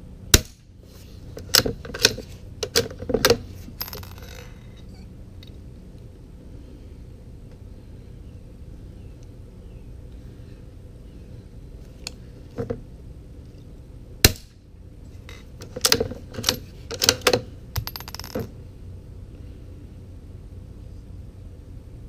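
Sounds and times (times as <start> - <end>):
rifle bolt clicks and clatter: 15.3 - 18.5.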